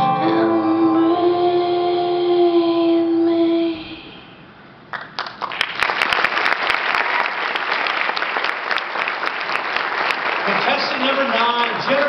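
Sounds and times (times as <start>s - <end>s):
recorded song: 0.0s - 4.1s
audience applause: 4.9s - 12.0s.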